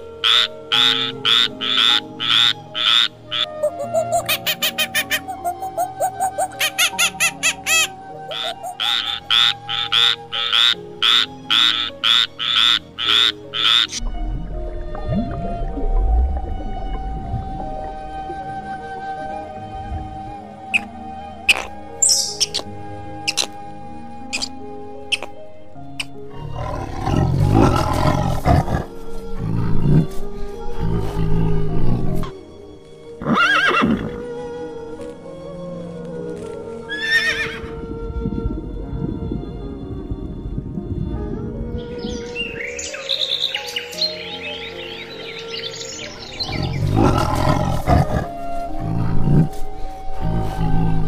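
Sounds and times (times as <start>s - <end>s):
background music: 0.0s - 51.0s
frog croaking: 0.2s - 14.0s, 21.5s - 23.6s, 24.3s - 25.4s
tiger roaring: 26.3s - 30.1s, 46.4s - 49.6s
horse whinnying: 33.2s - 34.2s, 36.9s - 37.8s.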